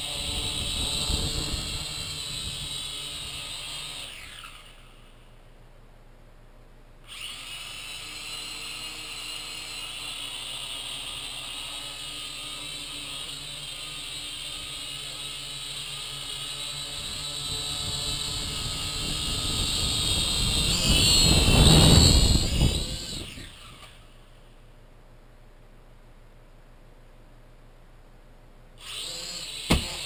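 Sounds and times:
drone propellers whining: 0:00.0 - 0:05.1, 0:16.3 - 0:24.2.

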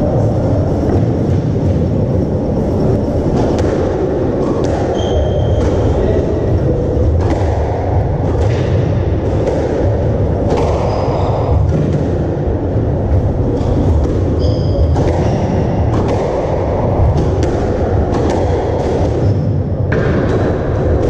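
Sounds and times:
steady low rumble: 0:00.0 - 0:21.0
squash ball struck by rackets: 0:03.3 - 0:06.0, 0:07.0 - 0:12.4, 0:13.5 - 0:21.0
shoe squeaks on wooden floor: 0:04.9 - 0:05.6, 0:14.4 - 0:15.5.

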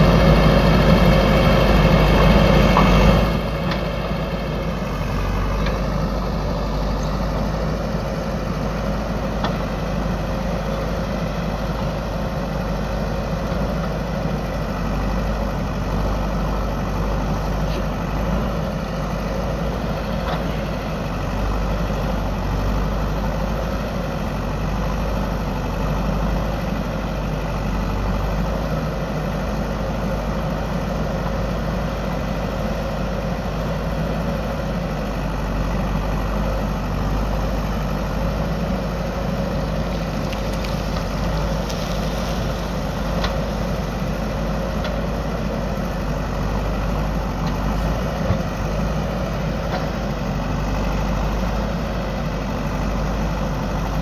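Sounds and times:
diesel engine under load: 0:00.0 - 0:54.0
backhoe arm digging soil: 0:39.2 - 0:45.8.

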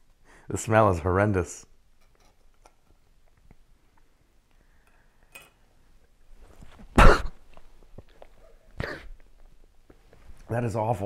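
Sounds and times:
person gagging cough: 0:07.0 - 0:07.4, 0:08.8 - 0:09.2.

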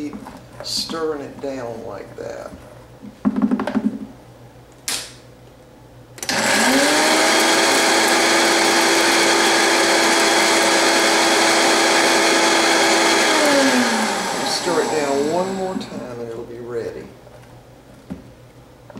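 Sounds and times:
rattle and knock: 0:03.2 - 0:04.1
blender motor grinding popcorn: 0:06.2 - 0:16.0.

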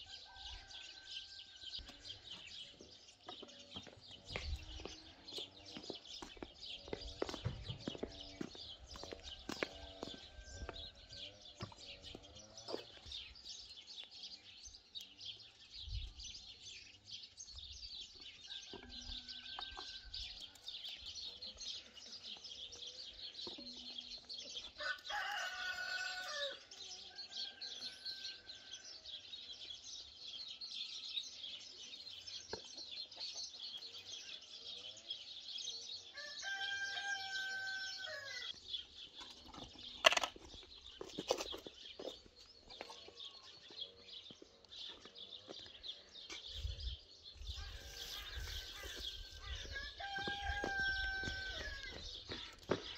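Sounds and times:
songbirds twittering: 0:00.0 - 0:52.9
rooster crowing: 0:24.8 - 0:26.6, 0:36.2 - 0:38.5, 0:49.7 - 0:52.0.

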